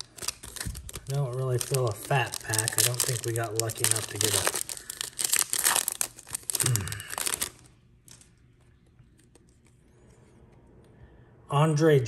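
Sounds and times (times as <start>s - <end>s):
foil wrapper crinkling and tearing: 0.0s - 8.3s.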